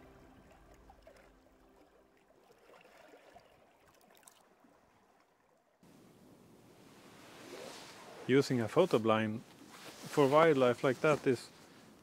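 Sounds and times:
background music: 0.0s - 2.2s
water trickling: 0.0s - 5.8s.

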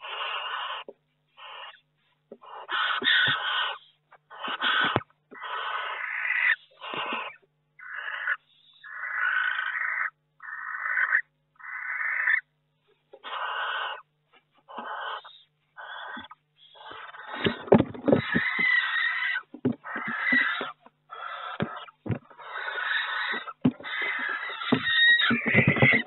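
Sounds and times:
owls hissing: 0.0s - 12.4s, 13.2s - 26.0s
low thumps: 21.6s - 22.3s.

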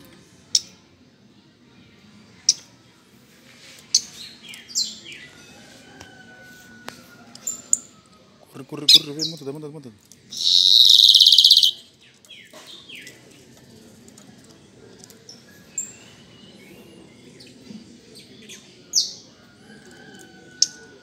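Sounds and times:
blackbird buzzy song: 3.9s - 5.4s, 10.3s - 13.2s.

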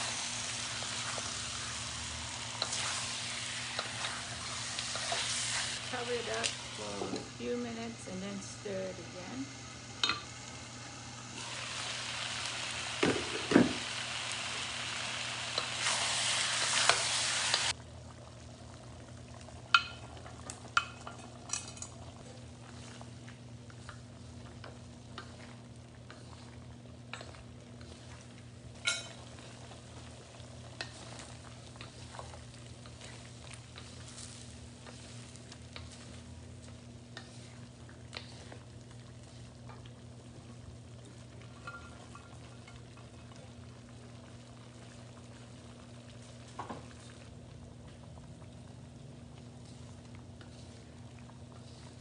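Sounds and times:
steady low hum: 0.0s - 11.6s
chicken sizzling in a wok: 0.0s - 52.0s
spatulas scraping a wok: 0.9s - 7.2s, 24.6s - 28.3s, 30.8s - 36.4s, 37.1s - 38.7s.

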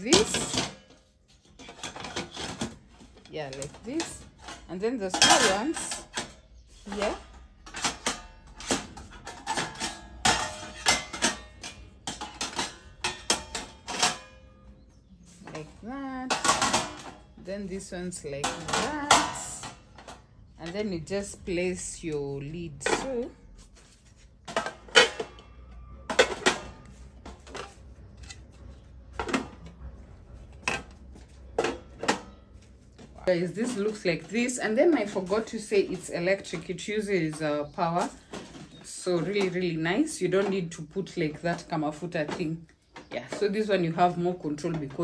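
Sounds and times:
pans knocking and clinking: 0.0s - 14.6s, 16.3s - 17.3s, 18.1s - 20.9s, 24.5s - 27.8s, 30.6s - 32.4s.

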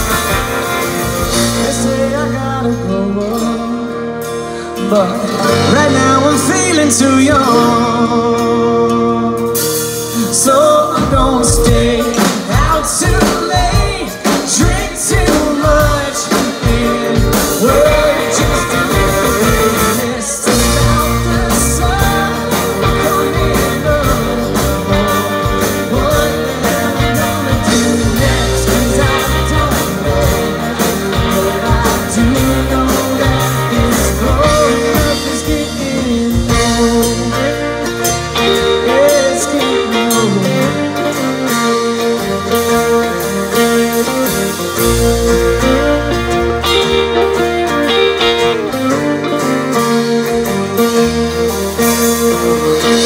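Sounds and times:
live rock band playing: 0.0s - 53.0s.

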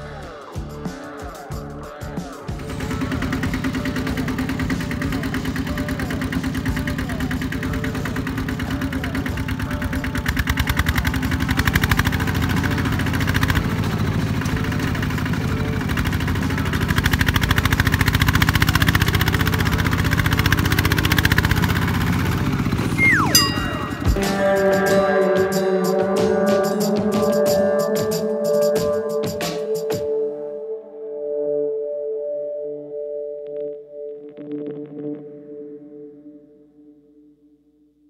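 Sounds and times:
diesel engine running under load: 2.6s - 23.0s.

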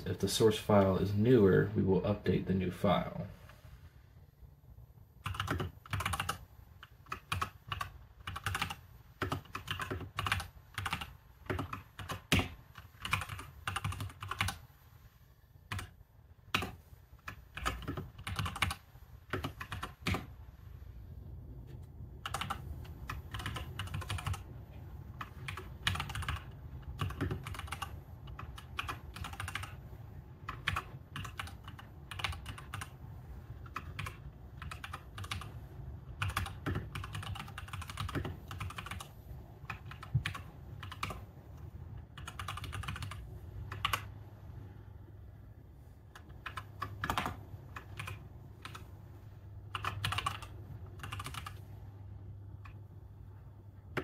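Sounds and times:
low steady hum: 0.0s - 54.0s
computer keyboard typing: 5.2s - 14.6s, 15.7s - 20.3s, 22.2s - 24.5s, 25.2s - 29.8s, 30.4s - 41.2s, 42.2s - 44.1s, 46.2s - 48.9s, 49.7s - 51.6s.

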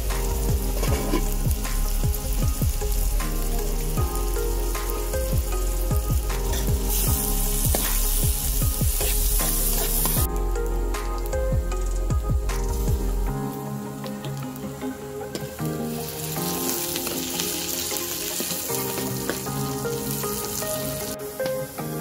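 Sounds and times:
onions sizzling in oil: 0.0s - 10.3s, 15.8s - 22.0s
stirring in a metal pan: 0.6s - 1.9s.

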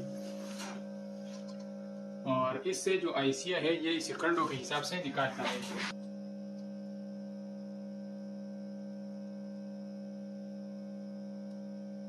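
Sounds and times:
hot air gun blower humming: 0.0s - 1.5s, 3.6s - 6.0s.

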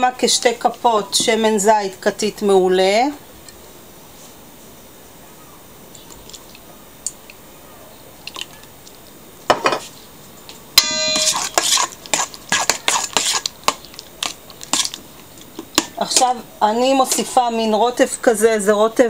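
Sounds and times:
sharp metallic strike: 10.8s - 11.5s
fork clinking against metal bowl: 10.8s - 13.4s.

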